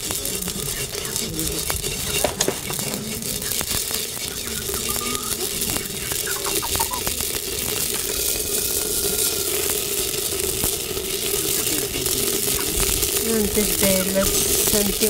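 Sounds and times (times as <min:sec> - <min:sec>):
grains crackling and popping: 0:00.0 - 0:15.0
hiss: 0:00.0 - 0:15.0.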